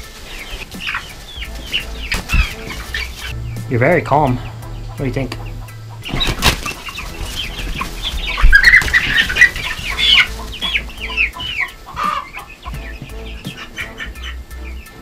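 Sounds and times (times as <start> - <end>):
wings flapping: 0.0 - 3.3, 6.0 - 14.0
rustling in wood shavings: 0.0 - 4.6, 6.0 - 14.1
hens clucking and chirping: 0.0 - 15.0.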